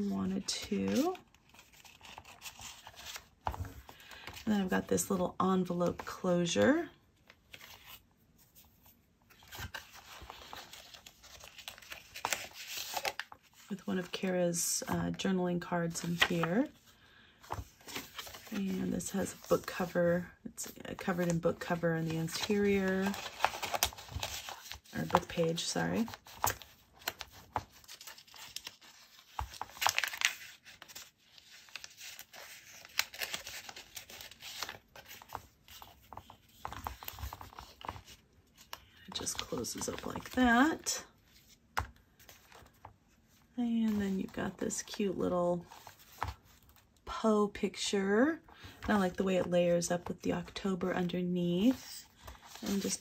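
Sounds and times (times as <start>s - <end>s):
paper rustling: 0.0s - 4.4s, 7.5s - 14.1s, 15.9s - 20.0s, 20.6s - 44.6s, 51.6s - 53.0s.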